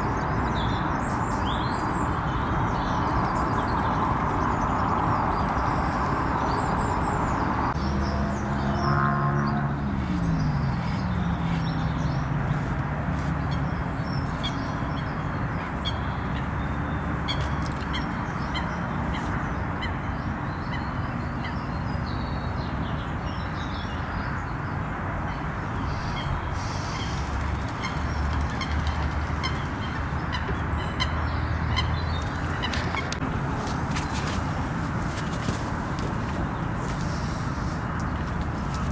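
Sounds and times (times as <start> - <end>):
steady rushing background noise: 24.4 - 38.9.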